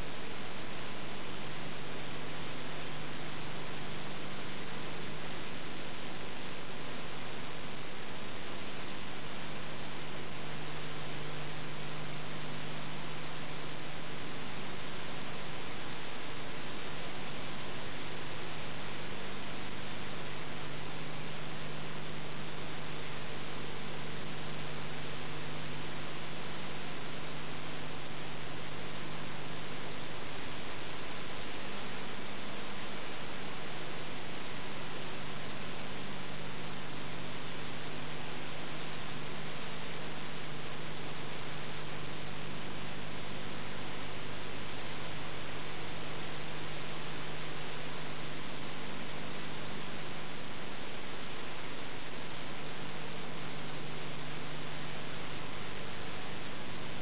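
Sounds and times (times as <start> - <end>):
low electrical hum: 0.0 - 57.0.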